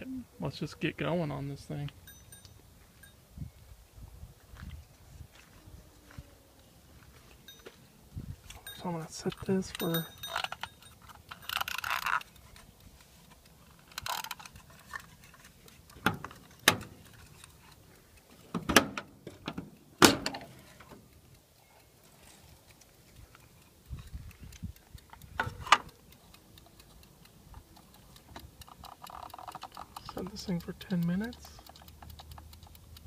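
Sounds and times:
egg timer clicks: 0:21.0 - 0:33.0.

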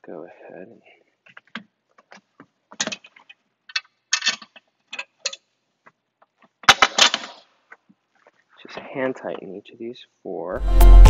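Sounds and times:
metal bolts and nuts clinking: 0:01.3 - 0:05.5, 0:06.6 - 0:07.5.

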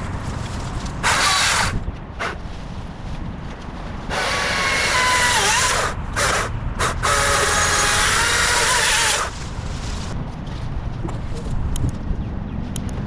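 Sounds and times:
electric chainsaw cutting: 0:01.0 - 0:01.8, 0:04.1 - 0:09.4.

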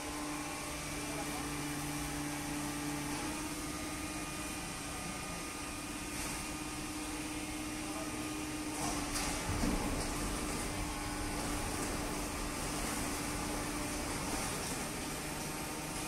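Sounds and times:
baler machine hum: 0:06.6 - 0:16.0.

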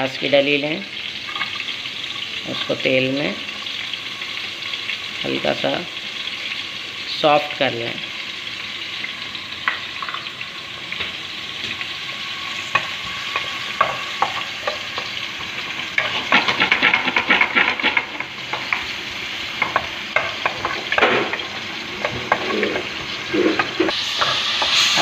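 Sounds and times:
onion sizzling in oil: 0:00.0 - 0:25.0
wooden spatula scraping a pan: 0:12.6 - 0:18.9, 0:19.6 - 0:25.0.

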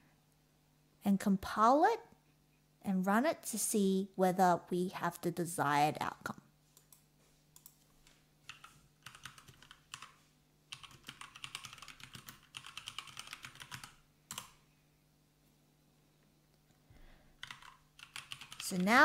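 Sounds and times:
typing on computer keyboard: 0:08.5 - 0:14.6, 0:17.4 - 0:19.0.

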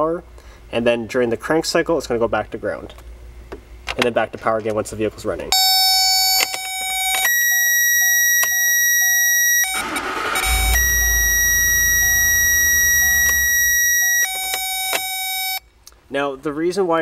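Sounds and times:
engine cranking and starting: 0:09.7 - 0:14.2
engine idling: 0:09.8 - 0:14.2
circuit tester high tone: 0:10.4 - 0:15.6.

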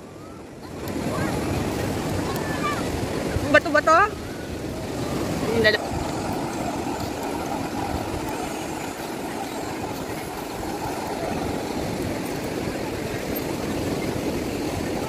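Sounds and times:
low surf washing: 0:00.0 - 0:15.0
wind buffeting microphone: 0:00.0 - 0:15.0.

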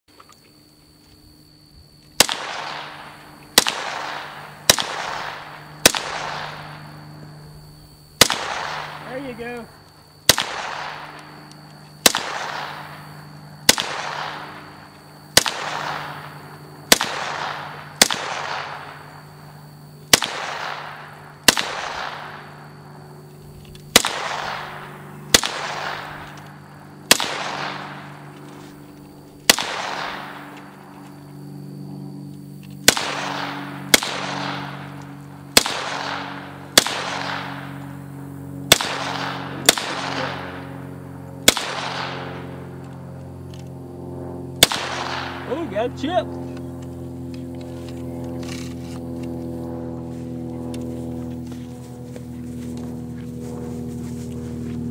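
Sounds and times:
submachine gun single shots: 0:02.2 - 0:07.2, 0:08.2 - 0:09.6, 0:10.2 - 0:11.4, 0:12.0 - 0:19.3, 0:20.1 - 0:22.8, 0:23.8 - 0:28.6, 0:29.4 - 0:30.8, 0:32.8 - 0:37.8, 0:38.6 - 0:42.8, 0:44.6 - 0:46.2.

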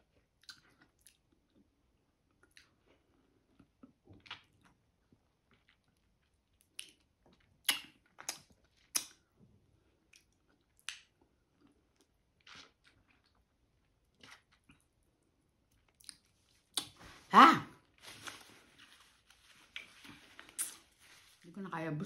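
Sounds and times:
quiet chewing: 0:00.2 - 0:17.2, 0:18.0 - 0:21.5
biting and sucking fruit: 0:19.7 - 0:21.0.

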